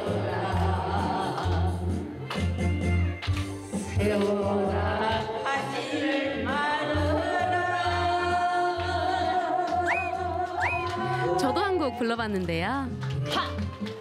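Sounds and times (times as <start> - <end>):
woman singing into karaoke microphone: 0.0 - 2.1, 3.9 - 12.1
karaoke backing track with bass beat: 0.0 - 14.0.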